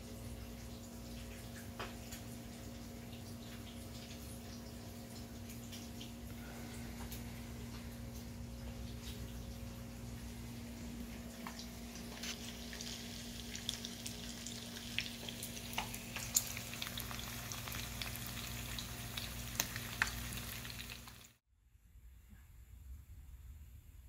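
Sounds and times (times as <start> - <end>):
bacon and eggs sizzling in a pan: 11.6 - 21.4.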